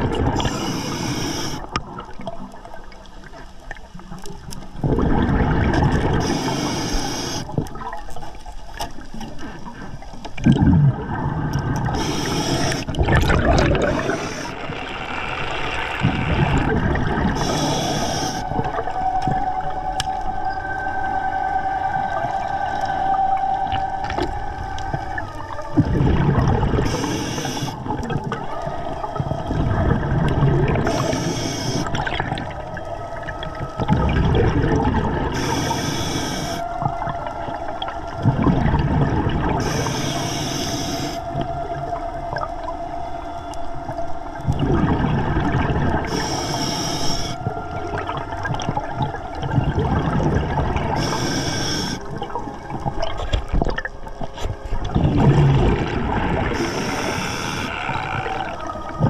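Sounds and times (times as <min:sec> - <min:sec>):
diver exhaling bubbles: 0:04.8 - 0:08.0, 0:10.4 - 0:18.9, 0:25.7 - 0:28.5, 0:54.8 - 0:59.0
low rumble of diver inhaling: 0:11.8 - 0:13.0, 0:17.3 - 0:18.6, 0:35.3 - 0:36.7, 0:39.6 - 0:41.3, 0:46.1 - 0:47.4, 0:50.8 - 0:52.1.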